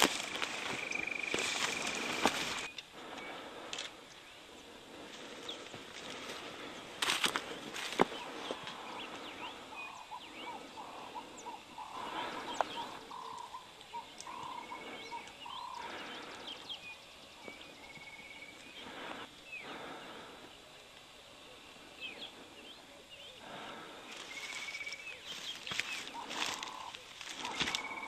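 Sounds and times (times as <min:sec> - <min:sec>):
rustling: 0:00.0 - 0:02.8, 0:24.2 - 0:28.0
birds chirping and trilling: 0:00.0 - 0:28.0.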